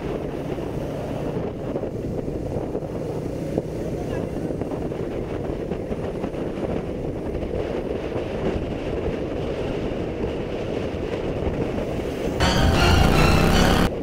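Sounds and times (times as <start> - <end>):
road noise: 0.0 - 7.3, 10.6 - 14.0
wind rush on microphone: 0.0 - 12.4
motorcycle engine: 12.3 - 14.0.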